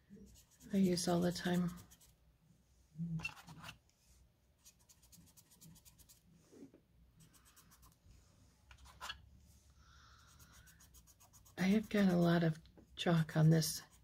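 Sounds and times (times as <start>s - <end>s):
brush scratching on cardstock: 0.2s - 2.2s, 4.6s - 6.3s, 10.3s - 12.3s, 13.6s - 14.0s.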